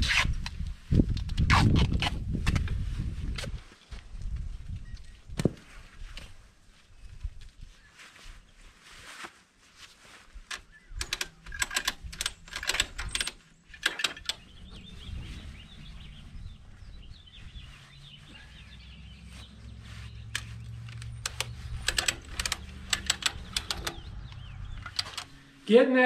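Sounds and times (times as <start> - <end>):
ratchet strap clicking: 10.5 - 14.4, 20.3 - 25.4.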